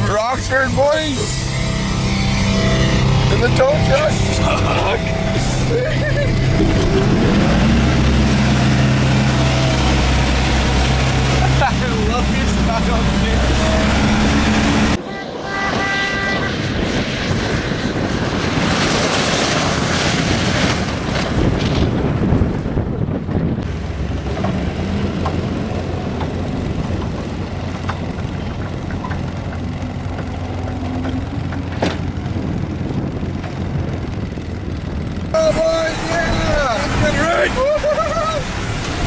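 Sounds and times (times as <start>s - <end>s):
truck engine revving: 0.0s - 15.1s, 15.7s - 39.0s
wind noise on microphone: 13.4s - 37.2s.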